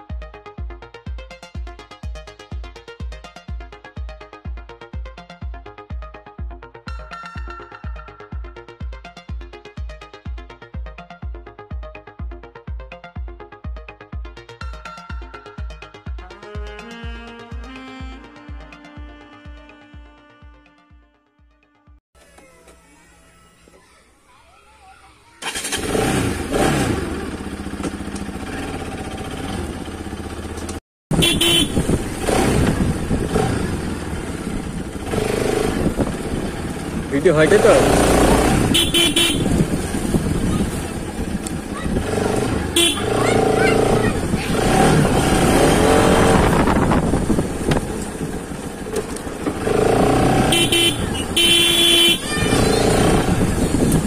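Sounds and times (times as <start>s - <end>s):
vehicle horn: 16.4s - 21.3s, 31.1s - 32.5s, 38.4s - 39.7s, 42.7s - 43.6s, 49.9s - 53.2s
road noise: 22.2s - 54.0s
motorcycle engine revving: 25.4s - 54.0s.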